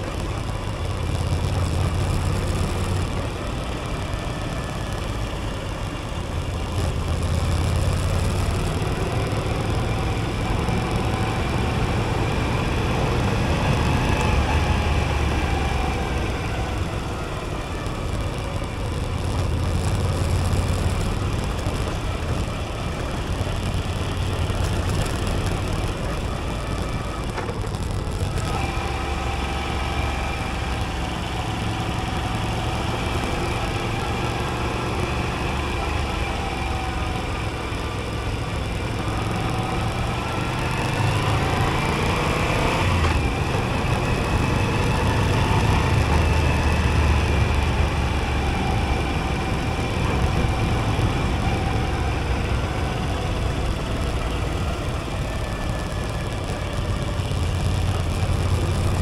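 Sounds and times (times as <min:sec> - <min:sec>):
motorcycle engine: 0:00.0 - 0:59.0.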